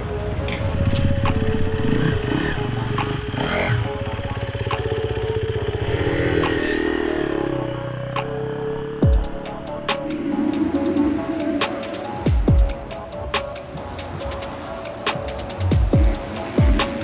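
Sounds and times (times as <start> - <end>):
dirt bike engine low revs: 0.6 - 9.4.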